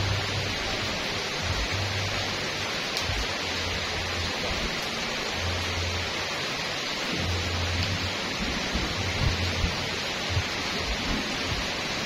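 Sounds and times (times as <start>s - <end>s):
rain falling on trees and pavement: 0.0s - 12.0s
low rumble: 7.1s - 11.8s.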